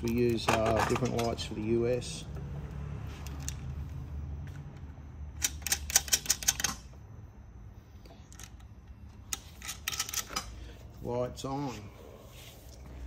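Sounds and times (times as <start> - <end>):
small hardware clicking and rattling: 0.0 - 2.0, 3.2 - 3.7, 5.4 - 7.0, 8.2 - 10.6.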